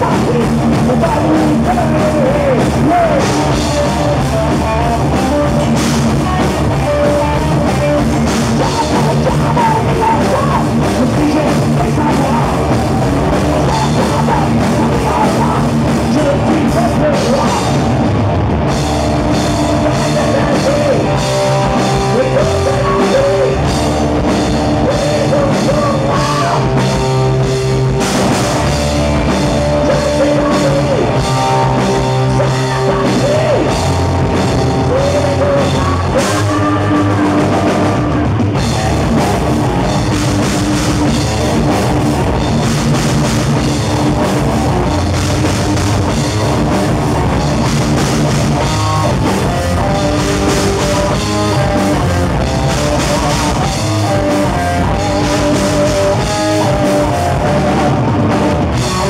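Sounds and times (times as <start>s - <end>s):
bass guitar: 0.0s - 59.0s
distorted electric guitars: 0.0s - 59.0s
drum kit: 0.0s - 59.0s.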